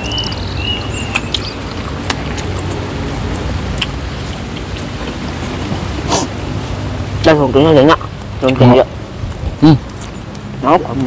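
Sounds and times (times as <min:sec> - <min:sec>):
wet chewing and smacking: 0:00.0 - 0:11.0.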